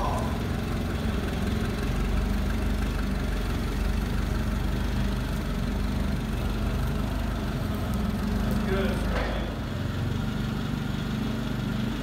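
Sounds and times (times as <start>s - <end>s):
forklift engine running: 0.0s - 12.0s.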